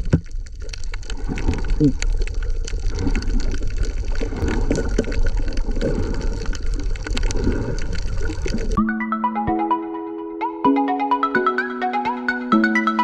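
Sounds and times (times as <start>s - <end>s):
muffled underwater rush: 0.0s - 8.8s
sharp clicks and crackles: 0.0s - 8.8s
electronic jingle chimes: 8.8s - 13.0s.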